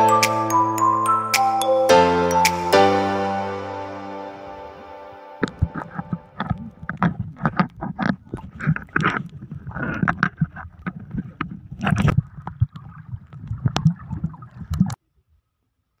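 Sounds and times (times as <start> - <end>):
pool water splashing and gurgling: 5.4 - 15.0.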